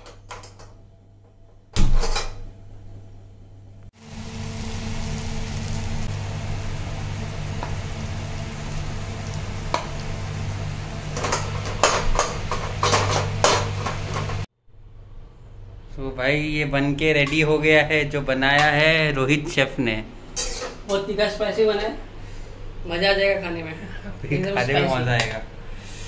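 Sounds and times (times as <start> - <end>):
food sizzling in a wok: 4.0 - 14.5.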